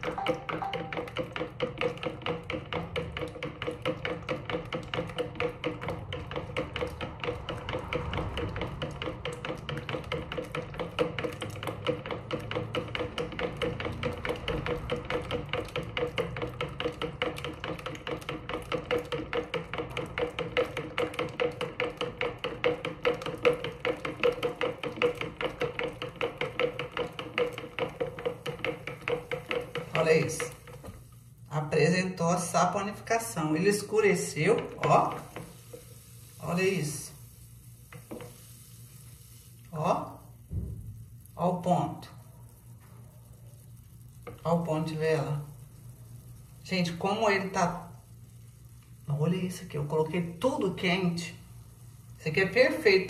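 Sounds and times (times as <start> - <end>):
steady ringing tone: 0.0 - 1.2
plastic spoon tapping jug: 0.0 - 31.0.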